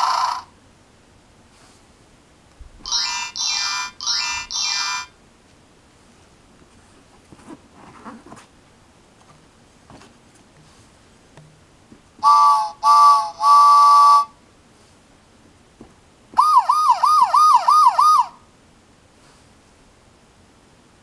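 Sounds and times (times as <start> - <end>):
page turning rustle: 6.6 - 8.5.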